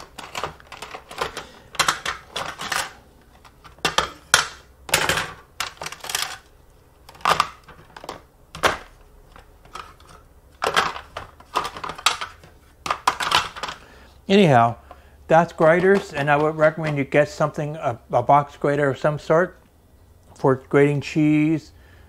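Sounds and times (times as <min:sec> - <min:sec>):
graters clicking and rattling: 0:00.0 - 0:06.5.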